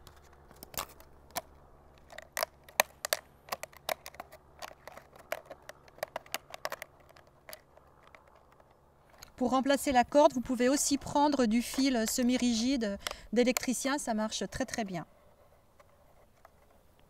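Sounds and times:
plastic bottle pieces crinkling: 0.0 - 9.4.

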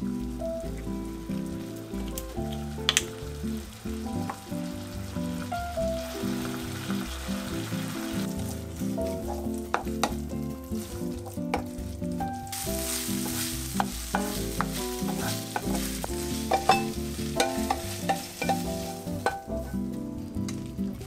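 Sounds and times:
meat sizzling in a frying pan: 0.0 - 19.7
wooden spatula scraping pan: 8.2 - 19.9
spatula tapping pan: 9.1 - 11.9, 12.5 - 19.8.

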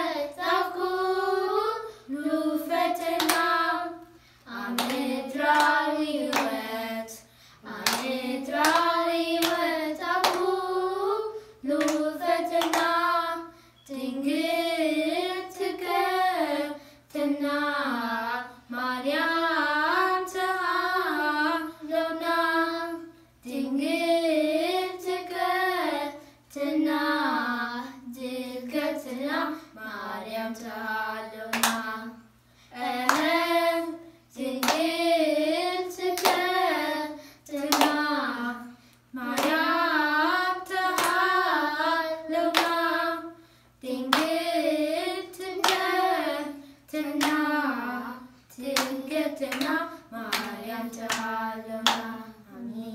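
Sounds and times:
children singing: 0.0 - 18.4
hand claps: 3.0 - 3.5, 4.7 - 6.6, 7.8 - 9.6, 10.2 - 10.5, 11.8 - 13.0, 31.5 - 31.9, 33.0 - 33.4, 34.6 - 34.9, 36.2 - 36.5, 37.6 - 38.0, 39.4 - 39.7, 40.9 - 41.3, 42.5 - 42.8, 44.1 - 44.4, 45.6 - 45.9, 47.2 - 47.5, 48.7 - 52.2.

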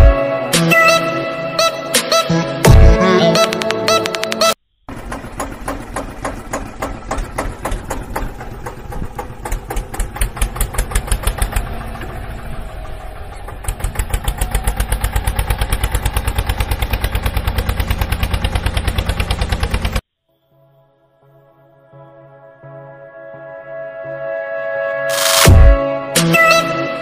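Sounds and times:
tractor engine chugging: 4.9 - 20.0.

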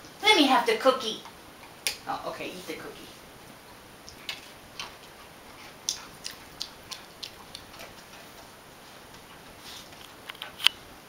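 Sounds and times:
dog crunching a cookie: 4.0 - 8.5.

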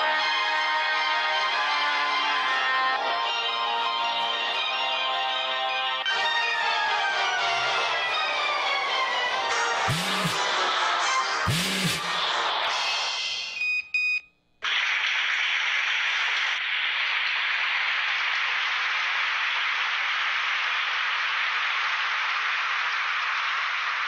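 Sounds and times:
music: 0.0 - 13.6
short electronic beeps: 13.6 - 14.3.

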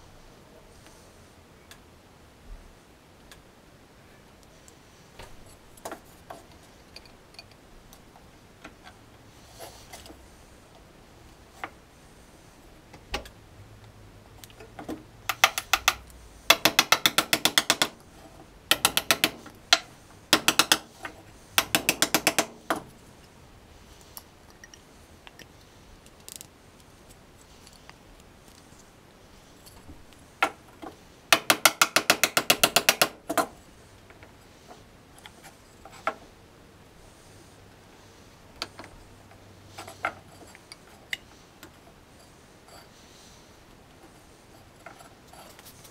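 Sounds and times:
ratchet tool clicking: 15.3 - 18.0, 18.7 - 20.9, 21.6 - 22.5.

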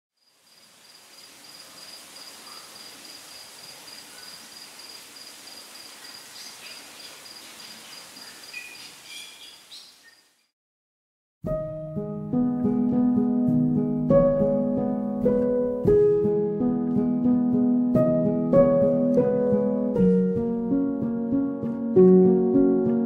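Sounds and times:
insect chirring: 0.2 - 10.5
soft outdoor hiss: 0.2 - 10.5
short bird calls: 8.2 - 10.4.

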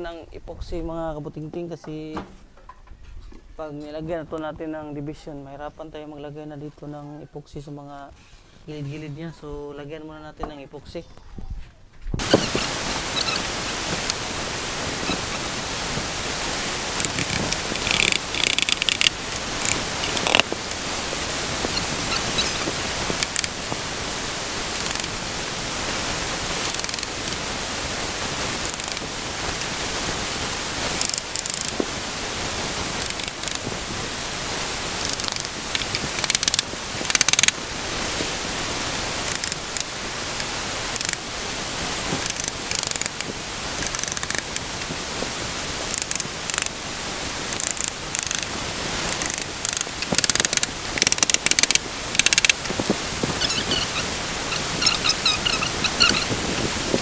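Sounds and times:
steady background hiss: 0.0 - 57.0.

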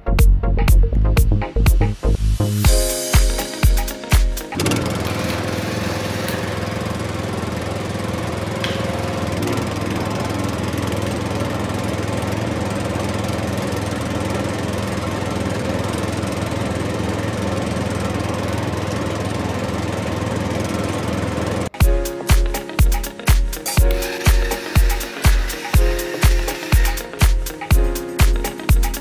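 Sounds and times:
toy tractor motor whirring: 4.6 - 7.1, 23.6 - 27.3.

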